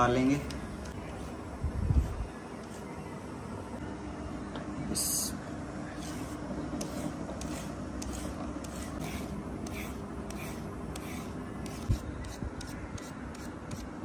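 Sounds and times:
vegetable peeler scraping carrots: 0:06.0 - 0:13.9.

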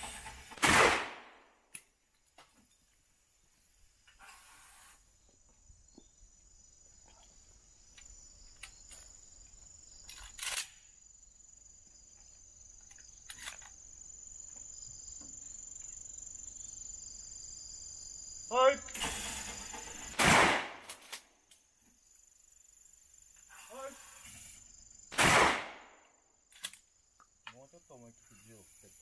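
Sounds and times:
sharp crack: 0:00.0 - 0:02.0, 0:20.1 - 0:21.3, 0:25.1 - 0:26.0
small clicks and knocks: 0:26.5 - 0:27.6.

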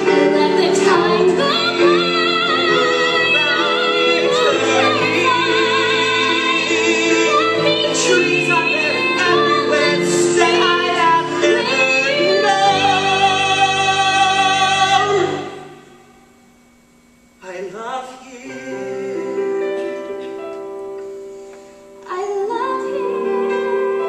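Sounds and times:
man singing ballad with vibrato: 0:00.0 - 0:15.9, 0:17.4 - 0:20.2.

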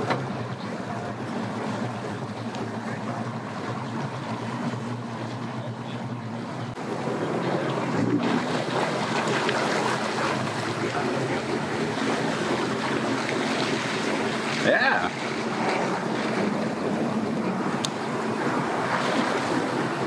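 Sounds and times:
outboard motor idling: 0:00.0 - 0:20.0
personal watercraft engine running: 0:00.0 - 0:20.0
water churning from jet: 0:00.0 - 0:20.0.

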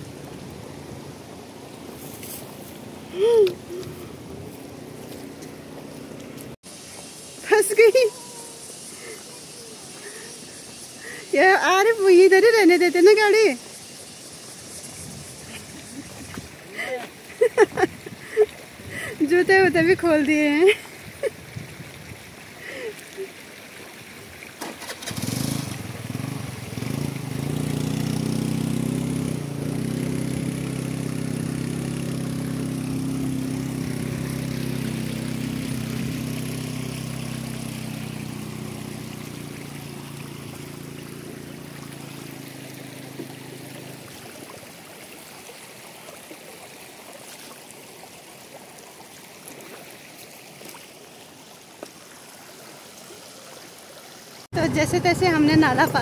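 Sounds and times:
stream trickling over stones: 0:00.0 - 0:56.0
scooter engine revving: 0:24.6 - 0:44.0.

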